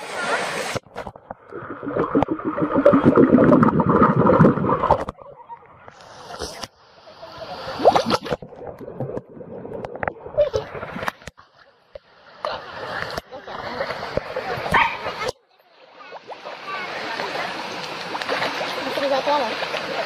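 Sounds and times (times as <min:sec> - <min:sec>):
muffled water gurgling and sloshing: 0:00.0 - 0:06.9, 0:07.7 - 0:15.2.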